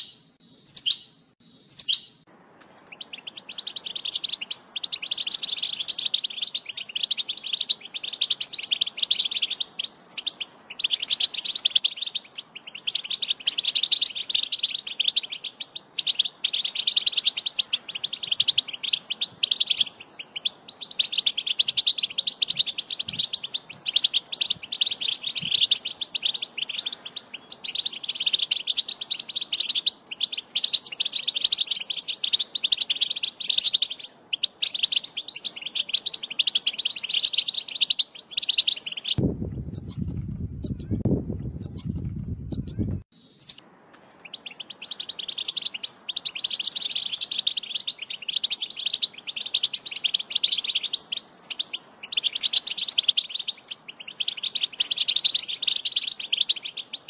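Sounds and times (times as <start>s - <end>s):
goldfinch twittering song: 0.0s - 41.0s, 41.6s - 57.0s
low rumbling noise: 39.2s - 43.1s.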